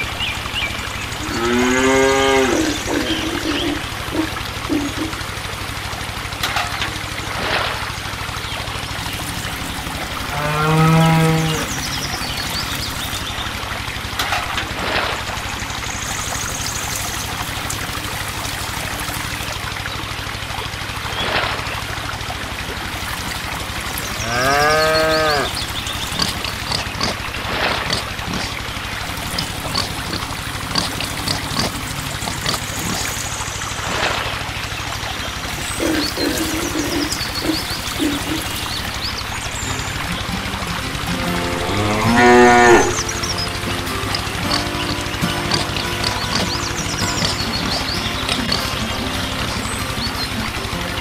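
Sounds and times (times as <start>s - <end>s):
trickling splashing water: 0.0s - 51.0s
cow mooing: 1.2s - 3.5s, 10.2s - 11.8s, 24.2s - 25.6s, 41.2s - 43.1s.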